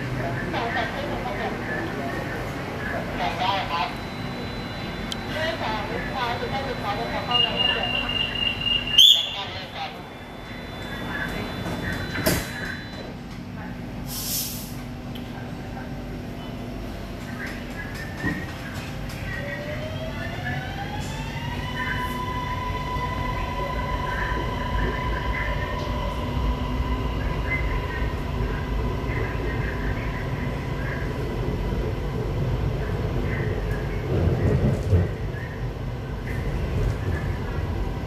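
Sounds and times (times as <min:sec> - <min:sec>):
wheels rumbling on track: 0:09.6 - 0:38.0.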